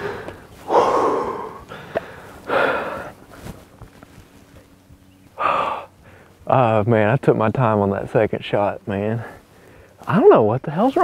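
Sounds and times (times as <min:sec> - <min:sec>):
man exhaling heavily: 0:00.0 - 0:03.1, 0:05.4 - 0:06.3.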